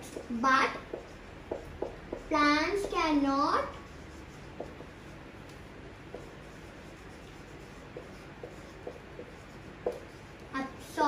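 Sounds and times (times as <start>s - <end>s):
steady low hiss: 0.0s - 11.0s
pen writing ticks: 6.2s - 10.2s.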